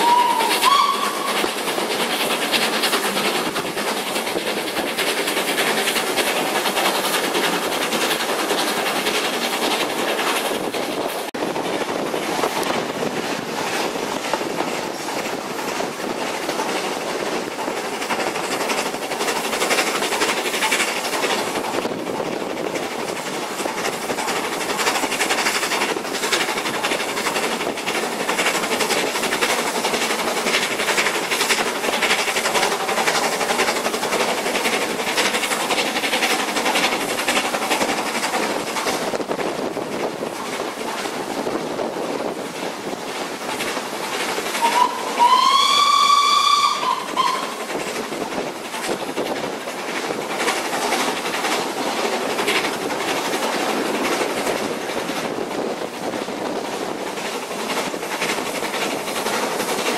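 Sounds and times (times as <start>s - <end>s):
steam locomotive whistle: 0.0s - 1.6s, 44.6s - 47.6s
train running rumble: 0.0s - 59.9s
wheels clicking over rail joints: 0.0s - 59.9s.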